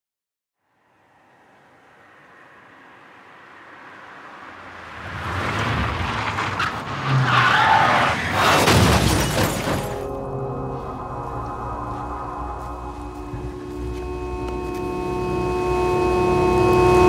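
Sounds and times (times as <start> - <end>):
car passing at speed: 0.7 - 8.7
tyres skidding squeal: 3.6 - 10.2.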